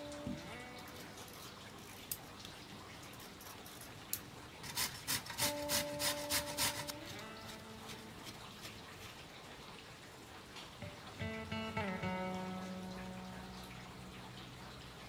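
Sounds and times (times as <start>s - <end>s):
pumpkin being grated: 4.6s - 9.1s.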